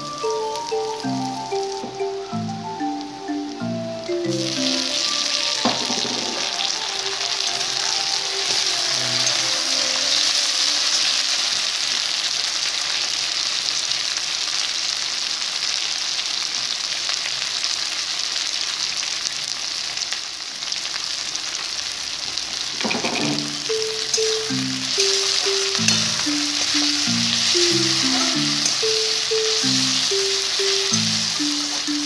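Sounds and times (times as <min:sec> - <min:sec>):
vegetables sizzling in hot oil: 0:00.0 - 0:32.0
metal spatula stirring: 0:22.8 - 0:31.8.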